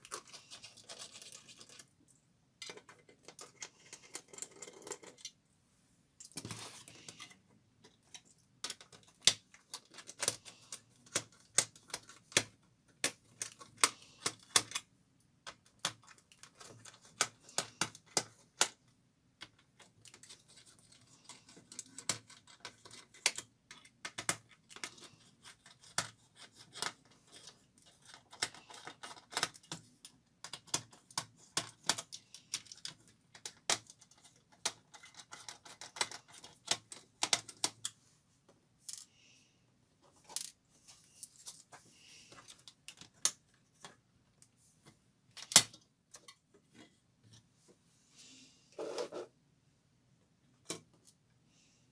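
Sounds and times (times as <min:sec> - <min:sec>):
hands clicking on laptop parts: 0:06.2 - 0:18.8, 0:19.4 - 0:38.0.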